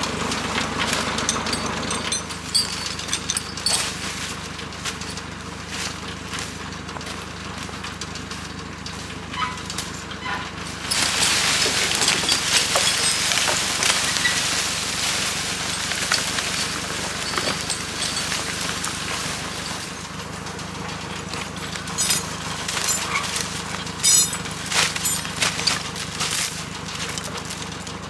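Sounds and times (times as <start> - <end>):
tractor engine running: 0.0 - 28.0
log dragging through dry leaves: 4.1 - 7.9, 10.5 - 27.4.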